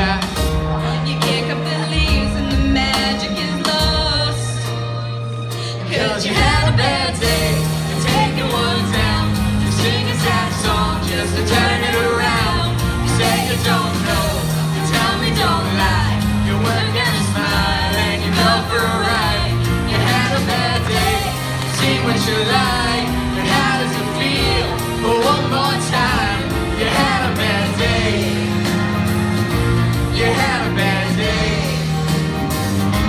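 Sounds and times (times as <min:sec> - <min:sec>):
pop singing into microphones: 0:00.0 - 0:04.8, 0:05.7 - 0:29.0, 0:29.9 - 0:32.2
instrumental accompaniment: 0:00.0 - 0:33.0
steady bass line: 0:06.0 - 0:33.0.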